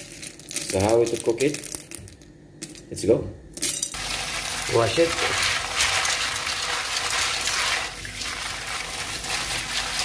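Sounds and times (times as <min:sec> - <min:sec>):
tap water running into pot: 0:04.0 - 0:10.0
hand swishing beans in water: 0:04.6 - 0:10.0.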